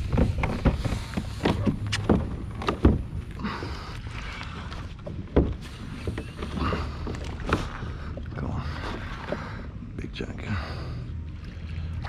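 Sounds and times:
wind rumble on microphone: 0.0s - 6.7s.

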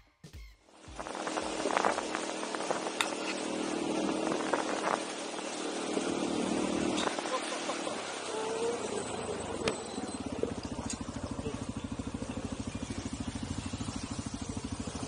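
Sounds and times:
music: 0.0s - 0.7s
motorcycle engine running: 0.6s - 15.0s
tyres on gravel: 0.8s - 15.0s.

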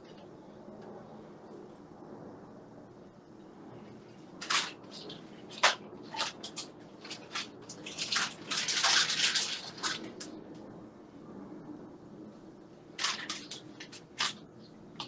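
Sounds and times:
plastic bag crinkling: 4.4s - 10.3s, 13.0s - 14.4s.

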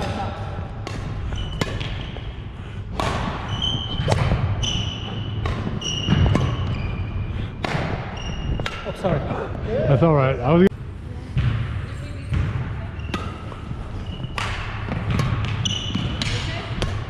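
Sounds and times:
racket hitting shuttlecock: 0.8s - 2.2s, 2.9s - 6.7s, 7.6s - 8.9s, 14.2s - 17.0s
shoes squeaking on wooden floor: 3.5s - 7.2s, 8.1s - 8.6s, 13.0s - 14.4s.

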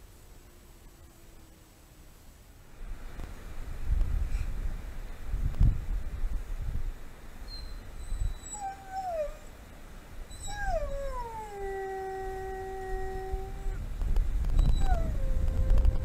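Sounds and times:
wolf howling: 10.3s - 13.8s, 14.7s - 16.0s.

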